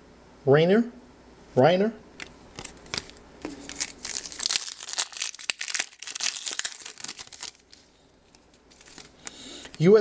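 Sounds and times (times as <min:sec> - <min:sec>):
plastic wrapper crinkling and tearing: 0:02.5 - 0:10.0.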